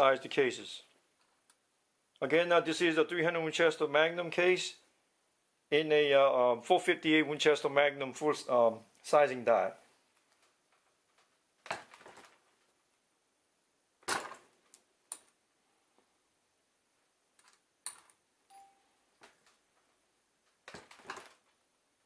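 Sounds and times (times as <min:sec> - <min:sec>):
metal cartridge cases clinking: 0:17.4 - 0:18.7.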